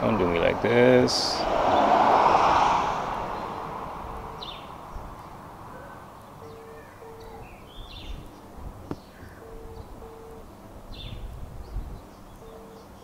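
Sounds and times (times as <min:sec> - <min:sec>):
birds chirping: 0:00.0 - 0:13.0
low two-note hoot: 0:05.7 - 0:08.2.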